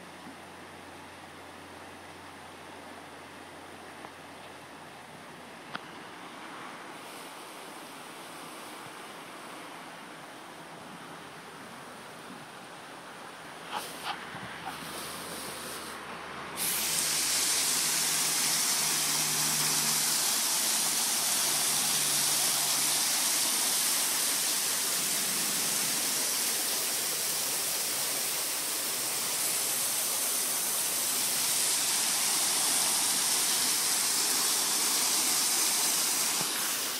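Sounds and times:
waterfall rushing: 0:16.5 - 0:36.9.

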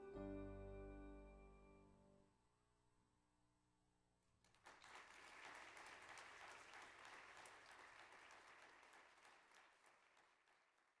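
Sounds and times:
crowd applauding: 0:04.5 - 0:11.0.

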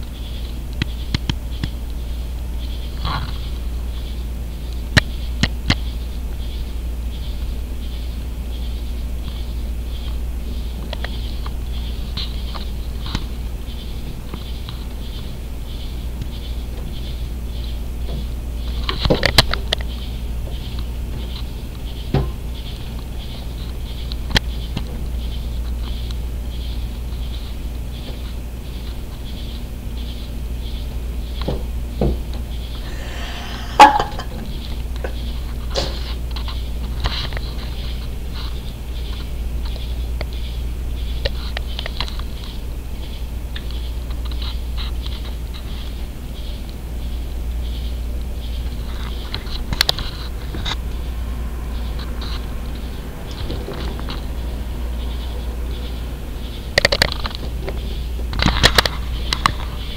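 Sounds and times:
steady low hum: 0:00.0 - 0:59.9
high pulsing chirping: 0:32.5 - 0:35.6, 0:46.4 - 0:58.3
moth ticking against window glass: 0:34.5 - 0:59.9.

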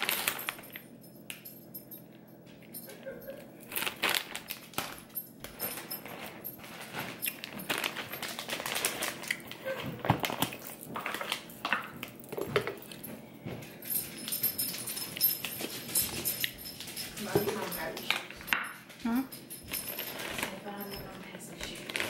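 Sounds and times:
plastic bag crinkling: 0:00.0 - 0:00.8, 0:03.6 - 0:13.0, 0:19.7 - 0:22.0.

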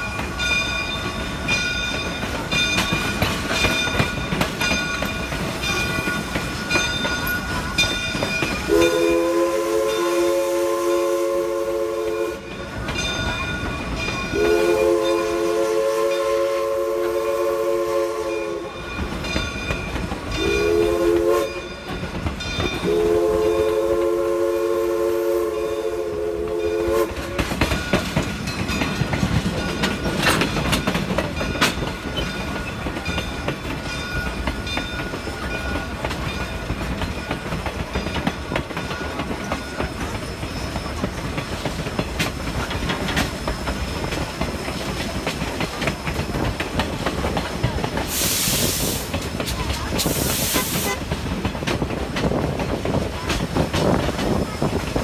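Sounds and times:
train wheels clattering on rails: 0:00.0 - 0:55.0
steam whistle chord: 0:08.7 - 0:12.5, 0:14.3 - 0:18.8, 0:20.4 - 0:21.7, 0:22.8 - 0:27.2.

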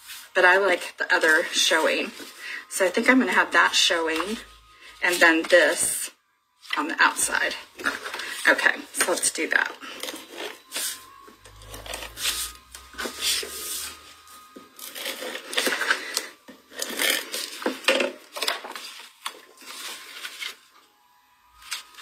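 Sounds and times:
paper rustling and sliding: 0:18.4 - 0:20.6.

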